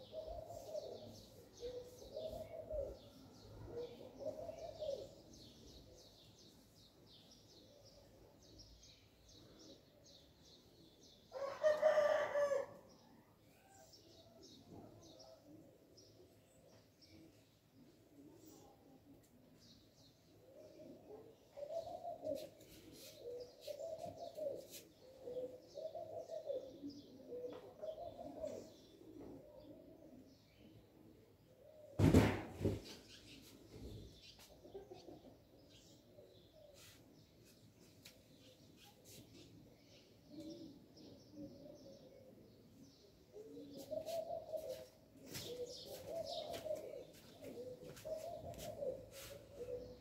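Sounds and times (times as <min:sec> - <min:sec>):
dove cooing: 0:00.0 - 0:05.8, 0:20.4 - 0:32.0, 0:40.3 - 0:50.0
small birds chirping faintly: 0:32.6 - 0:50.0.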